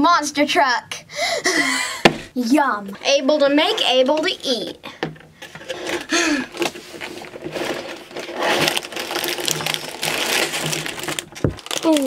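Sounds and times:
plastic bags rustling: 5.4s - 12.0s
cardboard box shaken: 7.2s - 12.0s.

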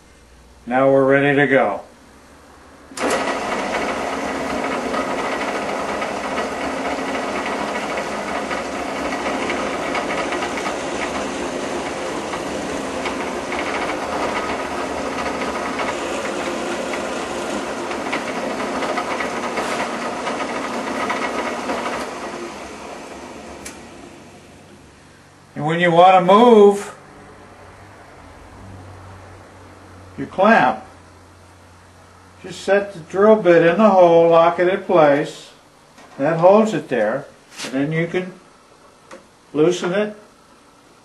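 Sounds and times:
drill press boring wood: 3.0s - 24.8s.

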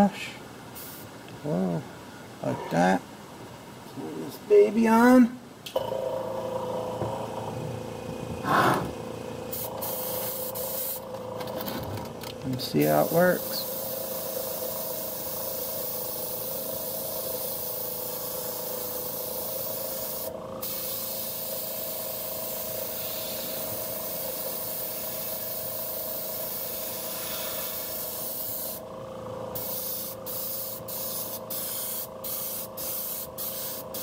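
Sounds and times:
airbrush spraying hiss: 0.8s - 1.1s, 9.5s - 11.0s, 12.8s - 28.8s, 29.6s - 34.0s.

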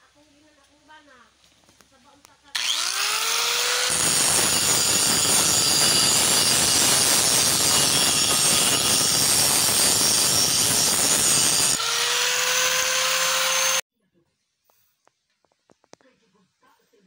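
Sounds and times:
angle grinder grinding metal: 2.5s - 13.8s.

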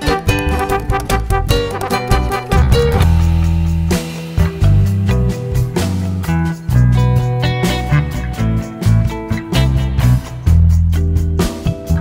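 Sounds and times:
guitar: 0.0s - 12.0s
held low bass notes: 0.1s - 11.3s.

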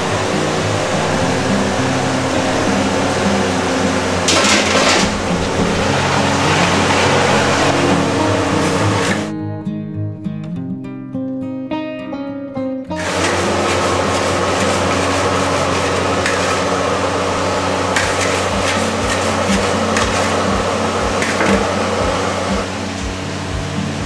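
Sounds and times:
gas burner running: 0.0s - 9.3s, 13.0s - 24.0s
metal ladle scraping iron wok: 18.0s - 20.5s.

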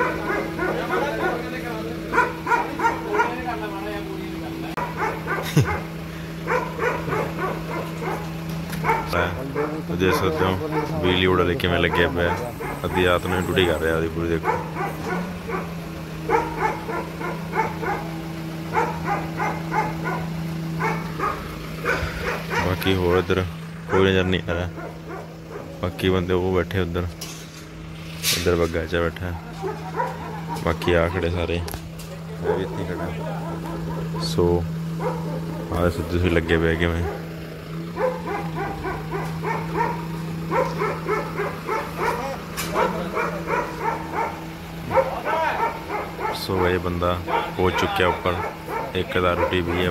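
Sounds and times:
dog barking: 0.0s - 4.1s, 4.7s - 26.1s, 29.3s - 49.9s.

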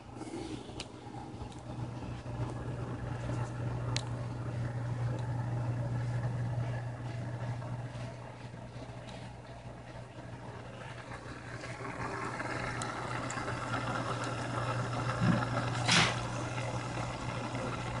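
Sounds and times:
underwater pump motor hum: 0.0s - 18.0s
air bubbles fizzing: 10.9s - 18.0s.

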